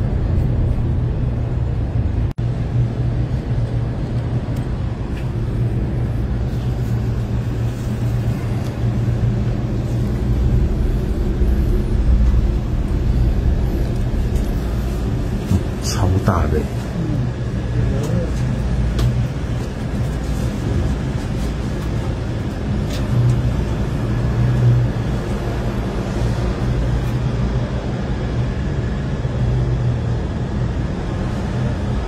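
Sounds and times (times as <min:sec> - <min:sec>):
cable car rumble and hum: 0:00.0 - 0:32.0.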